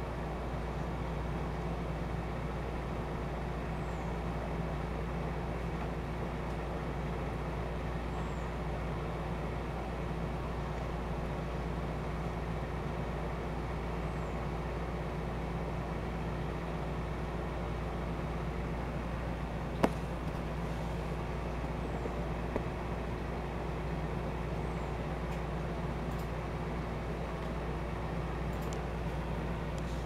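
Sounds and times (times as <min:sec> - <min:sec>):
low background hum with hiss: 0:00.0 - 0:30.0.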